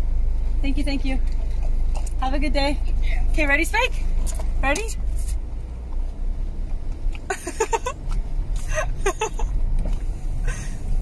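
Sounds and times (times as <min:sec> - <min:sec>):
car engine idling: 0:00.0 - 0:11.0
woman laughing: 0:07.3 - 0:08.0, 0:08.7 - 0:09.5.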